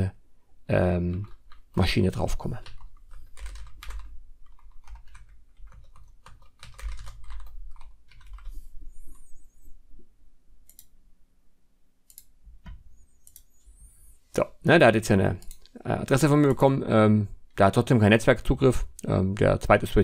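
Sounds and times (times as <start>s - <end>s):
computer keyboard typing: 1.1s - 9.7s.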